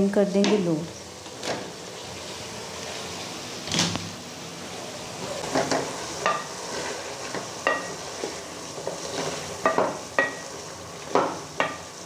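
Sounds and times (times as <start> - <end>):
vegetables sizzling in a pan: 0.0 - 12.0
spoon knocking and scraping pan: 5.4 - 11.9.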